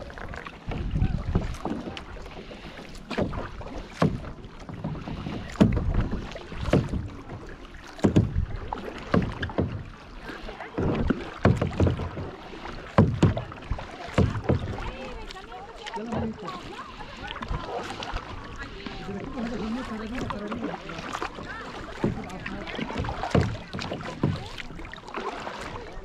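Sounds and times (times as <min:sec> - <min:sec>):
paddle splashing in water: 0:00.0 - 0:26.0
wind rumble on microphone: 0:00.6 - 0:02.0.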